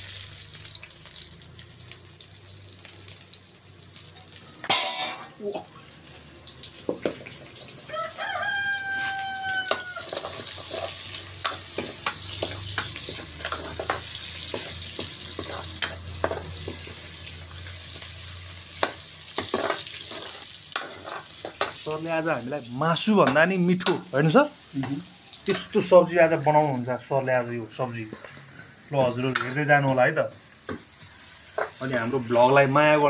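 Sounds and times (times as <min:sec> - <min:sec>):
onions sizzling in oil: 0:00.0 - 0:33.0
rooster crowing: 0:07.8 - 0:10.5
metal ladle scraping a wok: 0:08.9 - 0:18.0, 0:18.8 - 0:21.7.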